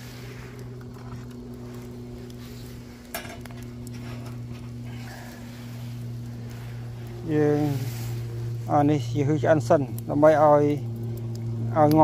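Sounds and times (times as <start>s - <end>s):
steady low hum: 0.0s - 12.0s
grill rack clinking on metal barrel: 3.1s - 4.8s.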